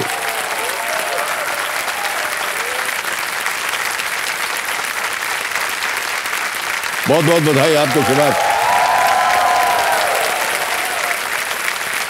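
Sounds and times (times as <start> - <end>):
audience clapping: 0.0 - 12.0
voices calling out: 7.2 - 11.2.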